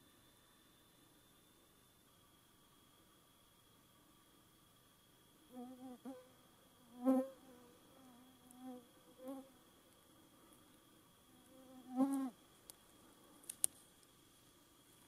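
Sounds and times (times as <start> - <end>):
sharp clicks: 13.4 - 13.8.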